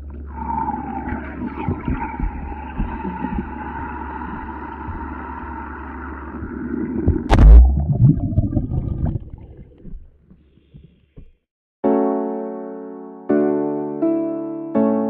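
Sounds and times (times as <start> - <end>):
rushing underwater noise: 0.0 - 10.4
churning water: 5.9 - 10.3
firecracker exploding underwater: 7.2 - 9.8.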